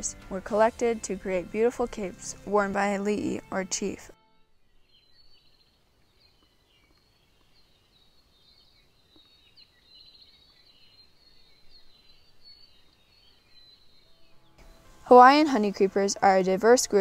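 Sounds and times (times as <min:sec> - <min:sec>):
faint birdsong chirps and trills: 0:00.8 - 0:17.0.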